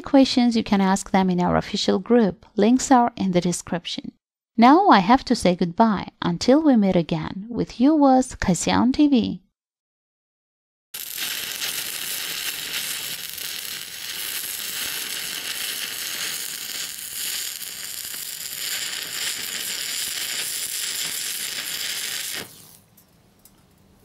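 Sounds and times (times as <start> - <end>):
welding arc crackling: 11.0 - 22.9.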